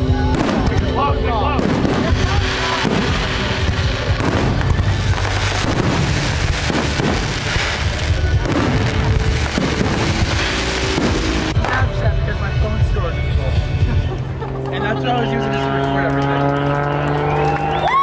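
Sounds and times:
fireworks bursting: 0.0 - 12.4
music playing: 0.0 - 18.0.

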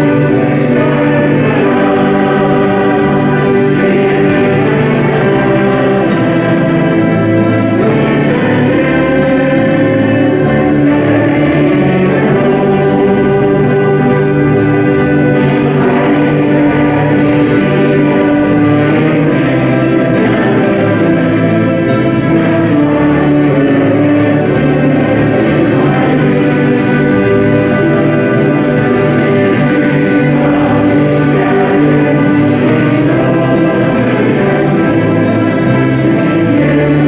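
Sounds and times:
accordion: 0.0 - 37.0
banjo: 0.0 - 37.0
choir singing: 0.0 - 37.0
fiddle: 0.0 - 37.0
saxophone: 0.0 - 37.0.

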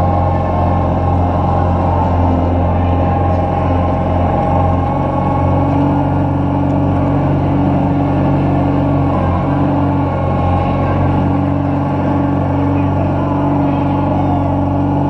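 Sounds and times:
ice resurfacer engine running: 0.0 - 15.0.

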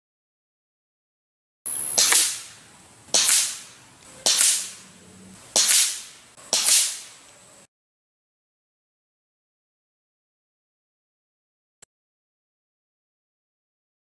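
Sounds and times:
air rifle shots: 1.7 - 4.9, 5.5 - 7.2.

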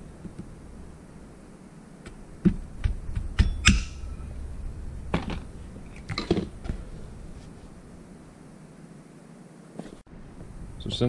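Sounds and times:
sharp metallic click: 3.4 - 4.2.

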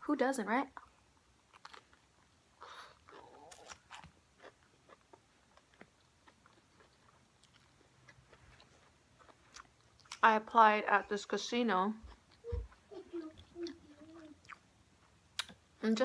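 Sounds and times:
chewing crunchy food: 0.8 - 10.3.

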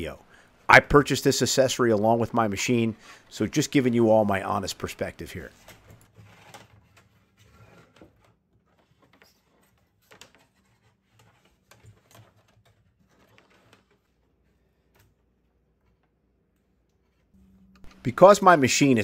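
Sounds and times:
cable taps and rustles: 5.5 - 17.2.

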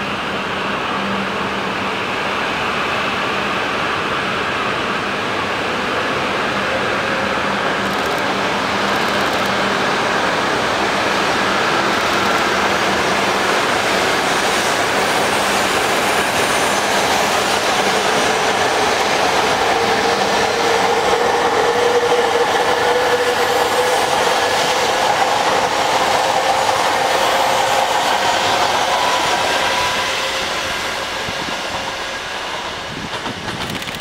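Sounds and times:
train rushing rumble: 0.0 - 34.0
train motor whine: 6.6 - 14.2.

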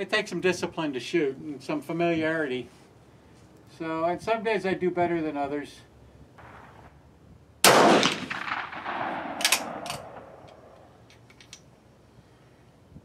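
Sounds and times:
rifle shot echoing: 6.4 - 6.9, 7.6 - 11.0
rifle bolt clicks: 8.0 - 11.7.

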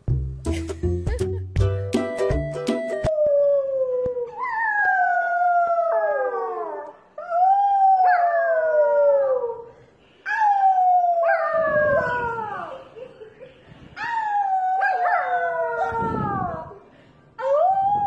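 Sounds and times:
music: 0.0 - 3.1
puppy howling: 3.1 - 9.7, 10.3 - 12.8, 14.0 - 16.8.

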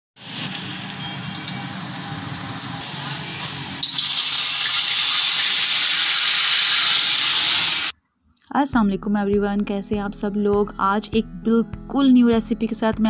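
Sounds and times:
hot oil sizzling in a wok: 0.2 - 7.9.

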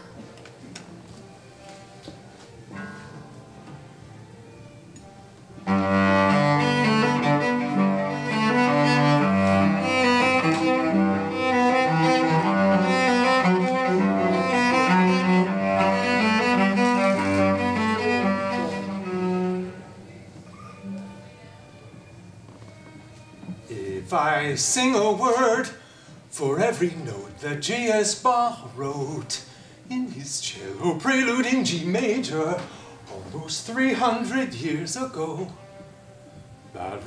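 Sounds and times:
solo cello playing: 5.6 - 20.1.

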